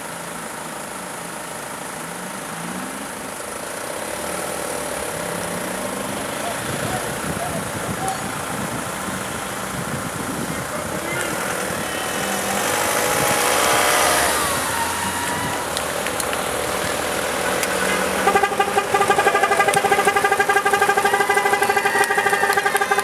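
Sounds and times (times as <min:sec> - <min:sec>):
street noise: 0:00.0 - 0:23.0
faint voices: 0:06.1 - 0:09.3, 0:09.9 - 0:23.0
crossing signal beeping rapidly: 0:17.8 - 0:23.0.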